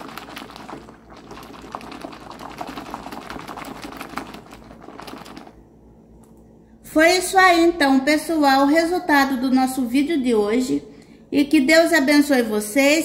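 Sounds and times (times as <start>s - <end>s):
hand sloshing soapy water: 0.0s - 5.6s
lather crackling and popping: 0.0s - 5.6s.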